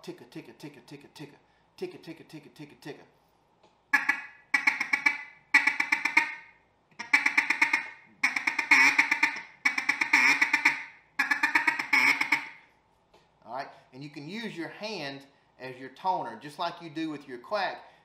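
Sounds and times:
duck call ticking chuckle: 3.9s - 12.6s.

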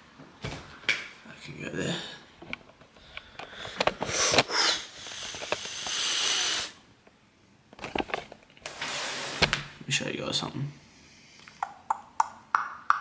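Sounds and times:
man breathing close to microphone: 2.9s - 6.8s.

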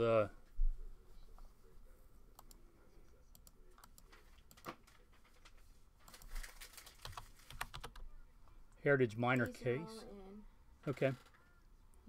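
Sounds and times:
computer keyboard typing: 6.1s - 8.0s.

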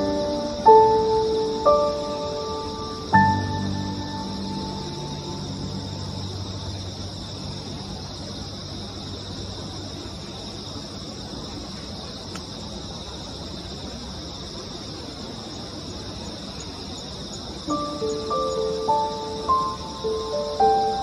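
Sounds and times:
insect chorus chirring: 0.0s - 21.0s
low steady rumble: 3.1s - 11.7s.

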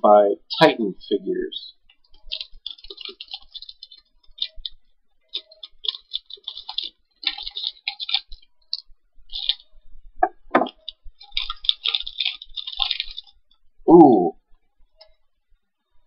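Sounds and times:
foil wrapper crinkling: 1.8s - 9.8s, 10.7s - 13.7s
packaging rustle: 1.9s - 9.7s, 10.7s - 13.6s.

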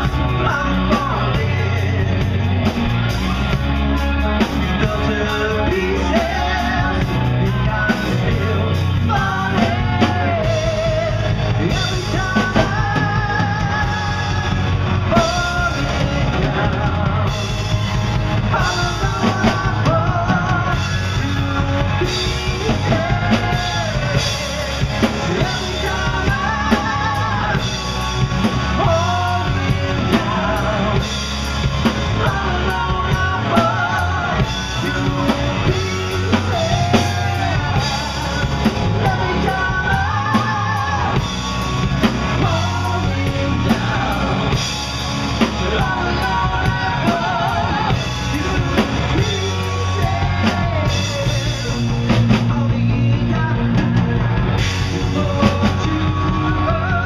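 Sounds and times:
live rock band playing: 0.0s - 57.0s
man singing: 0.0s - 57.0s.

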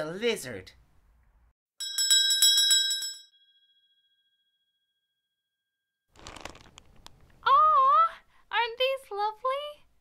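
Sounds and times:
shop door bell ringing: 1.8s - 4.7s.

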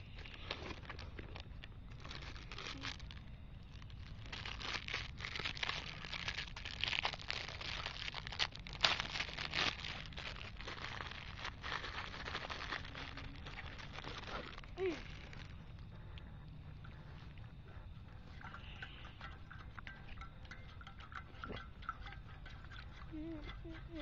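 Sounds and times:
plastic packaging crinkling: 0.2s - 15.6s.

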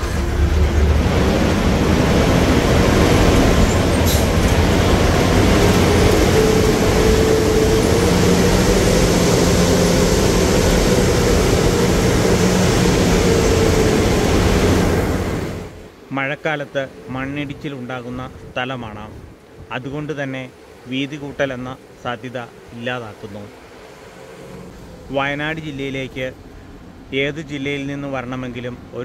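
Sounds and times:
bus engine: 0.0s - 29.0s
road noise: 0.0s - 29.0s.

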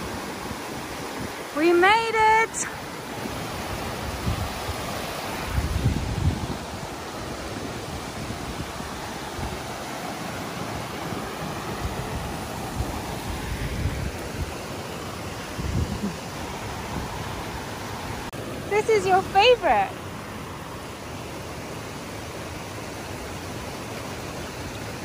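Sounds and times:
wind rumbling on microphone: 0.0s - 1.6s, 3.1s - 18.3s
river rushing over rocks: 0.0s - 25.0s.

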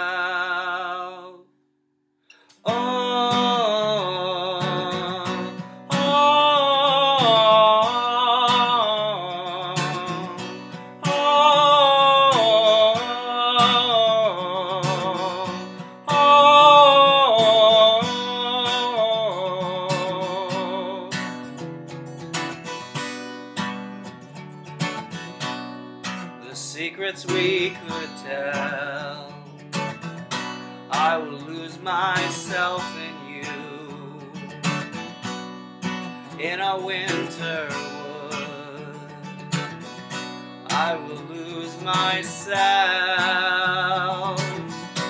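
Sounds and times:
man singing wordless melody: 0.0s - 1.5s, 2.6s - 21.4s, 26.4s - 29.9s, 30.8s - 34.8s, 36.2s - 39.8s, 40.6s - 45.0s
acoustic guitar strummed: 0.0s - 1.6s, 2.3s - 45.0s.

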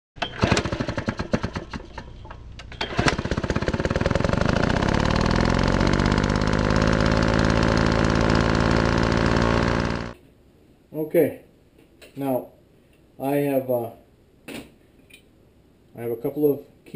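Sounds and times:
small engine sputtering and running: 0.2s - 2.2s, 2.8s - 10.2s.

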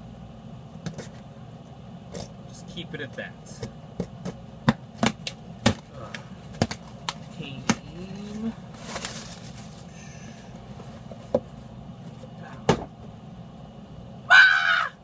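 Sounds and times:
plastic wrap rustling: 6.6s - 11.3s
taps and knocks on box: 12.6s - 12.9s.

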